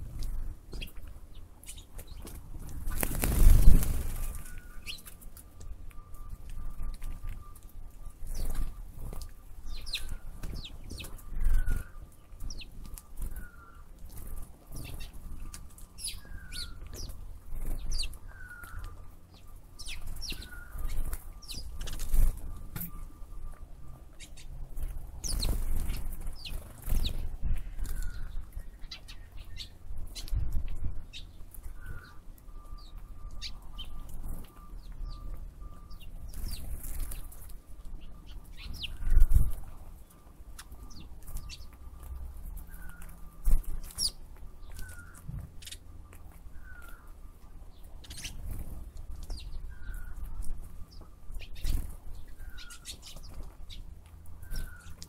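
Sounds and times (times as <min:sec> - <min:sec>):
birds chirping: 0:00.0 - 0:55.0
wind rumble on microphone: 0:24.6 - 0:40.0.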